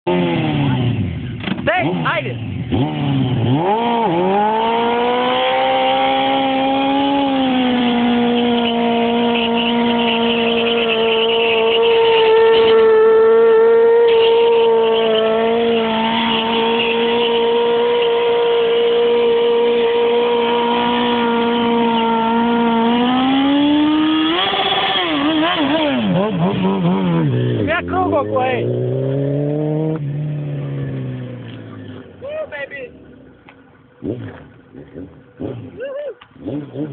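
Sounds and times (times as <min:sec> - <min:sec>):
motorcycle engine at high revs: 0:00.0 - 0:36.9
tyre spinning on asphalt: 0:02.6 - 0:28.0.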